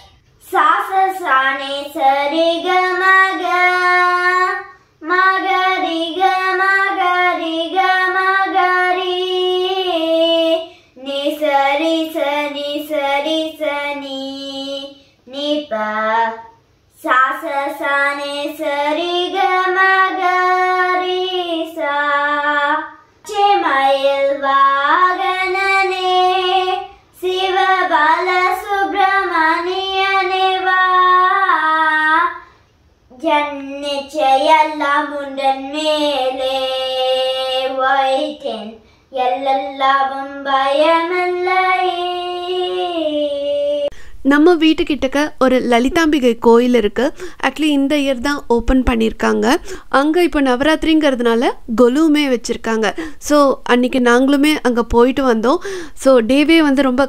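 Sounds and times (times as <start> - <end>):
boy singing: 0.0 - 32.5, 33.1 - 44.3.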